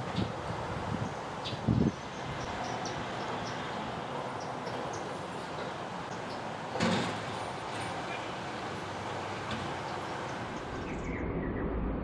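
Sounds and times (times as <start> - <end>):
garbage truck running: 3.8 - 10.5.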